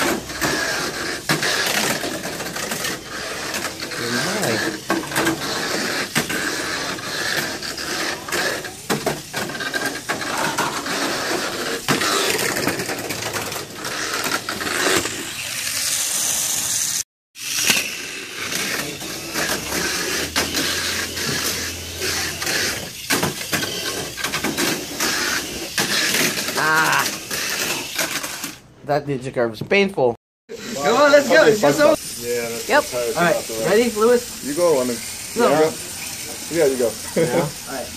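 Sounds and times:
small motors whirring: 0.0s - 28.6s, 30.5s - 37.9s
toy cars clattering on track: 0.0s - 28.6s.

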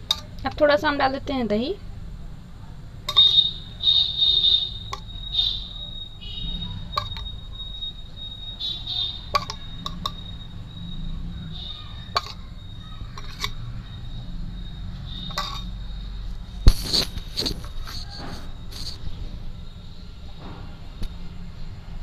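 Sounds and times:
metal spoon clinking on a plate: 0.0s - 0.5s, 7.0s - 7.3s, 9.3s - 10.2s, 12.1s - 12.5s, 13.1s - 13.6s, 15.3s - 15.8s.

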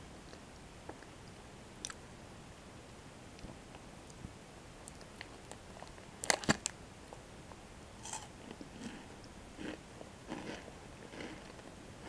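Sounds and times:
chewing crunchy wafer: 8.0s - 11.7s.

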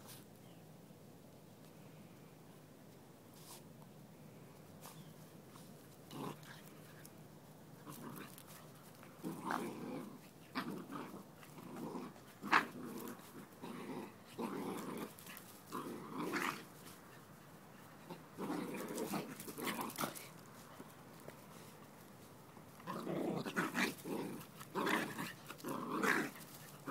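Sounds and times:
puppies growling: 7.7s - 20.4s, 22.7s - 26.9s.

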